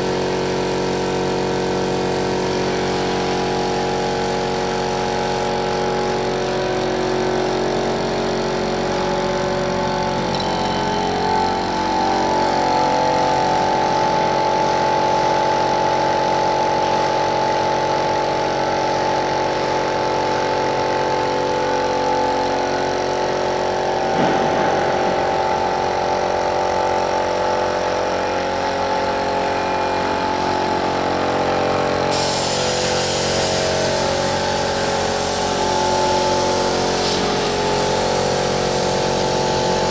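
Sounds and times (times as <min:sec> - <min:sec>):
spray gun hissing: 0:00.0 - 0:07.3, 0:32.1 - 0:39.9
air compressor running: 0:00.0 - 0:39.9.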